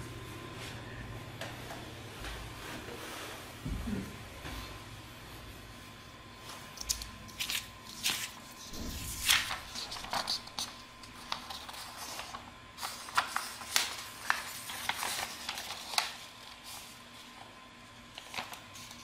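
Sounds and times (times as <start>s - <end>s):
paper rustling and crackling: 6.6s - 19.0s.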